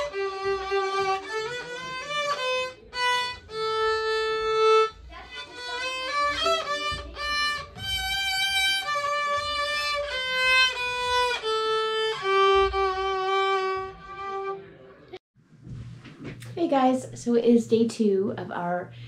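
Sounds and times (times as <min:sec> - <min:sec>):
child playing violin: 0:00.0 - 0:14.7.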